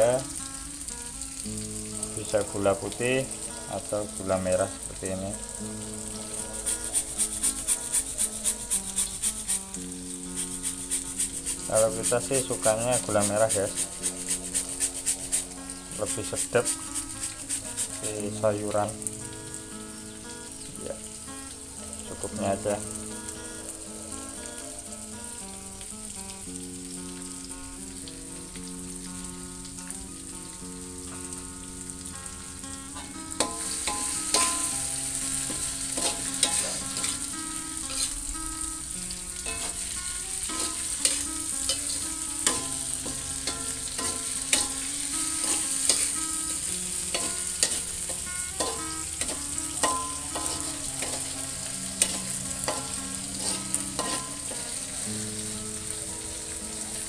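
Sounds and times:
paste sizzling in a wok: 0.0 - 57.0
metal spatula scraping a wok: 6.4 - 18.1, 33.4 - 38.3, 39.4 - 55.0.

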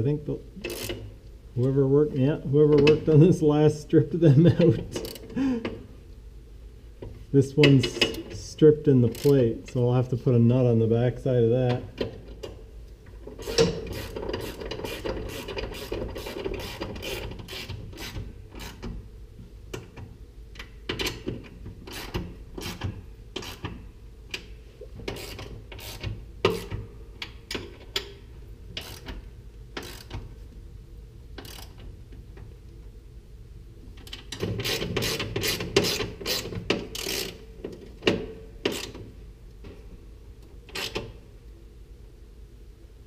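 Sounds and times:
ratchet wrench clicking: 0.6 - 1.0, 5.0 - 5.3, 9.1 - 9.4, 13.4 - 18.8, 21.9 - 22.8, 23.4 - 23.8, 25.1 - 26.8, 28.8 - 29.2, 29.8 - 30.2, 31.4 - 31.8, 34.0 - 37.4, 38.7 - 39.0.

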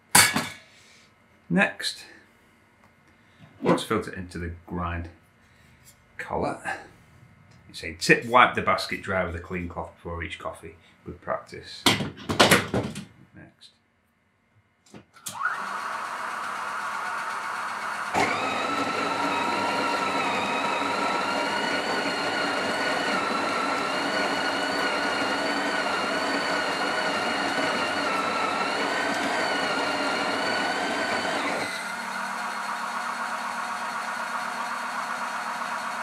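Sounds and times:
coffee grinder motor whine: 15.2 - 36.0.

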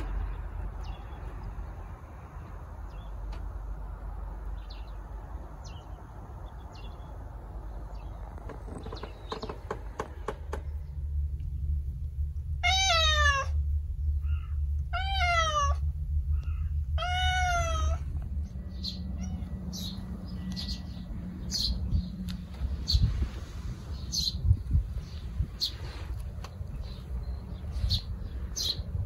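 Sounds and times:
cat meowing: 12.6 - 13.6, 14.9 - 15.8, 17.0 - 18.1, 19.2 - 19.6
faint bird chirps: 14.0 - 14.7, 16.3 - 16.9.

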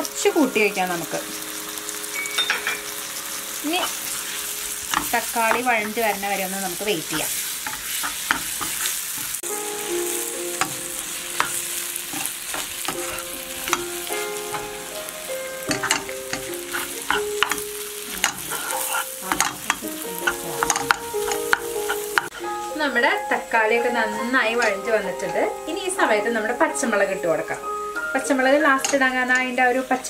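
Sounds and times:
food sizzling in frying pan: 0.0 - 30.0
spatula scraping and knocking pan: 4.0 - 9.5, 10.5 - 14.9, 15.6 - 22.6.

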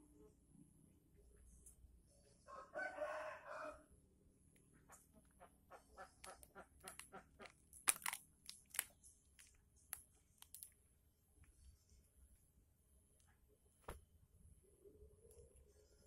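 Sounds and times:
brittle bamboo crackling and snapping: 6.2 - 10.8.

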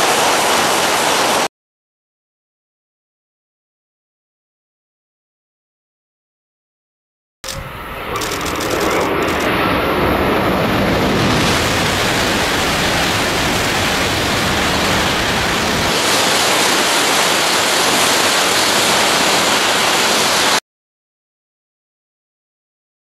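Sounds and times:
high-speed train rushing past: 7.4 - 20.6.

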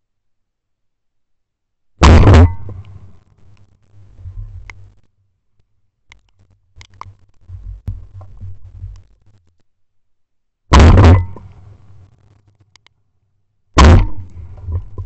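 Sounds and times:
shotgun shot with echo: 2.0 - 2.8, 10.7 - 11.5, 13.8 - 14.3
low rumble: 2.0 - 3.3, 4.0 - 5.0, 10.7 - 12.1, 13.8 - 15.0
faint clicks: 2.7 - 9.7, 11.4 - 13.0.

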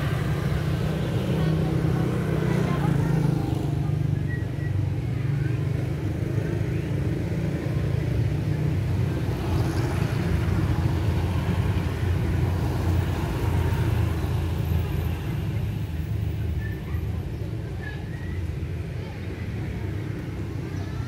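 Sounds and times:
road traffic rumble: 0.0 - 21.0.

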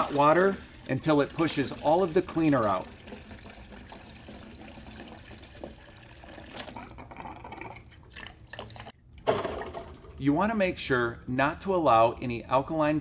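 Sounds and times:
water running into a pitcher: 0.0 - 10.0.

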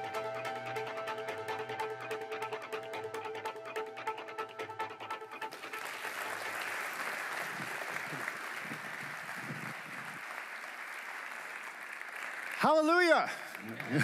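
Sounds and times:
audience applauding: 5.4 - 14.0.

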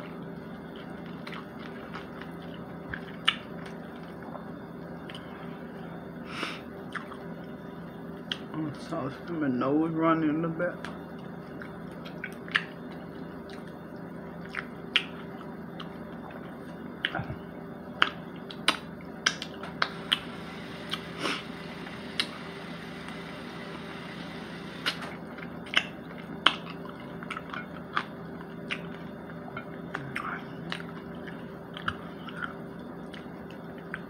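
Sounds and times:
steady low hum: 0.0 - 34.0
person chewing food: 0.6 - 5.3, 13.4 - 20.2, 20.8 - 22.3, 24.4 - 34.0.

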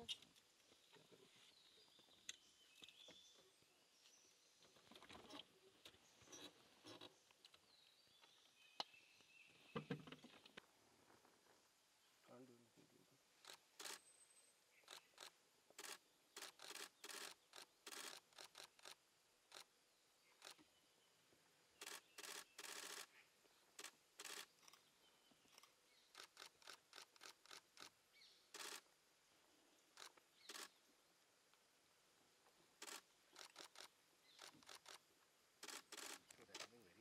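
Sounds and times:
camera shutters firing in bursts: 13.4 - 14.0, 14.8 - 19.7, 21.8 - 23.1, 23.8 - 24.8, 28.5 - 28.8, 30.0 - 30.7, 32.8 - 35.0, 35.6 - 36.7.

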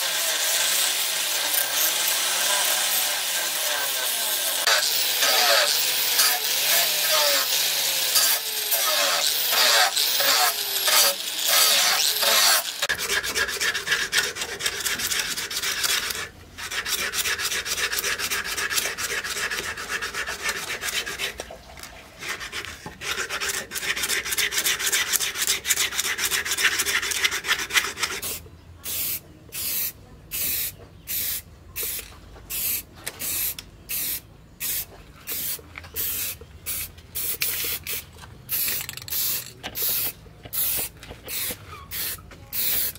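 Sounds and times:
angle grinder sanding steel: 0.0 - 21.3
aerosol spray can hissing: 28.9 - 42.9.

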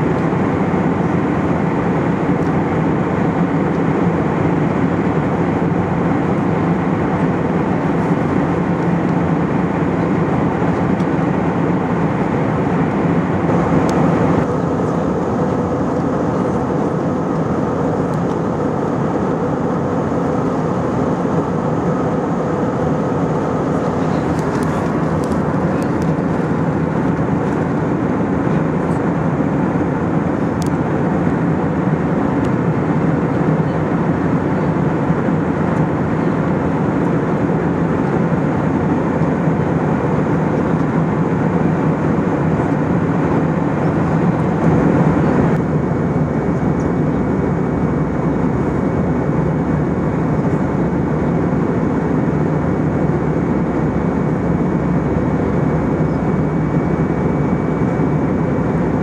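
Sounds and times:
aircraft cabin engine hum: 0.0 - 59.0
faint high whine: 40.0 - 59.0.

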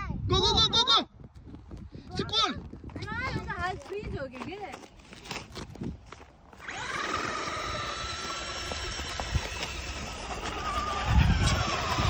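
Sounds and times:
wheels churning through snow: 6.0 - 12.0
toy truck motor whining: 6.6 - 12.0.

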